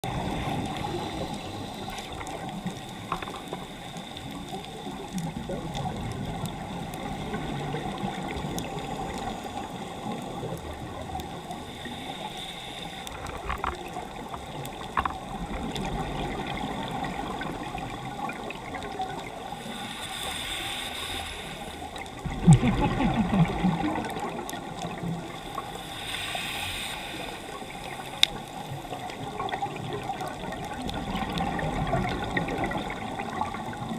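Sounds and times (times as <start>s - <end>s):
diver regulator inhale hiss: 0.2s - 5.0s, 8.2s - 13.5s, 19.3s - 22.1s, 23.8s - 29.5s
bubbling exhale: 19.6s - 29.8s
sharp underwater clicks: 21.9s - 33.9s.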